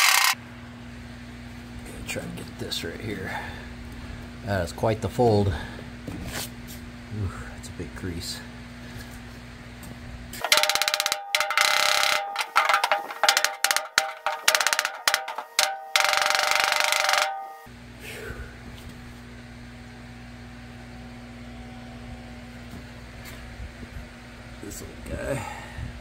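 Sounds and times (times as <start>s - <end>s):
hammering on sheet steel: 10.4s - 17.7s.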